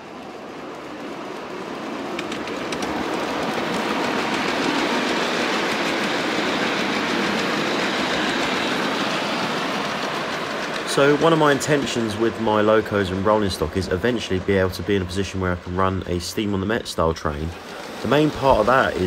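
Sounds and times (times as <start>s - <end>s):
train wheels rumbling on track: 0.0s - 19.0s
sharp clicks: 2.1s - 4.9s.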